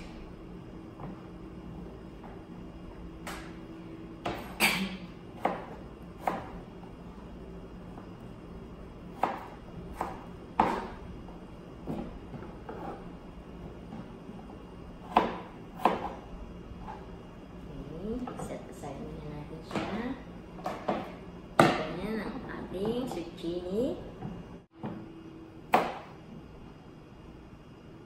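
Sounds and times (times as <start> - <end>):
knife chopping on plastic board: 5.4 - 6.6, 9.2 - 11.0, 11.8 - 13.0, 15.0 - 16.2, 20.6 - 21.9, 25.7 - 26.1.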